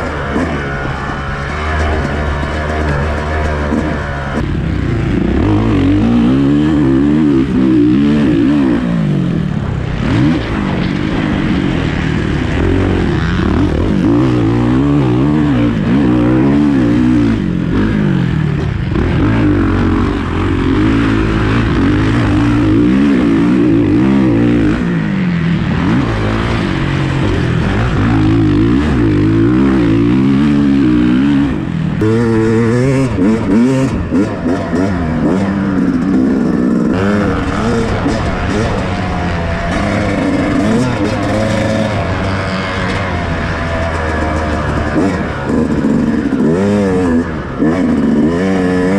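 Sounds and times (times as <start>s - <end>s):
dirt bike engine revving: 0.0s - 48.9s.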